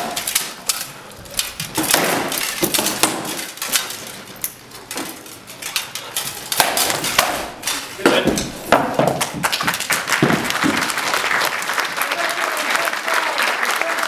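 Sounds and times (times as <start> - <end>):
swords striking shields and armour: 1.6 - 3.9, 6.5 - 9.3.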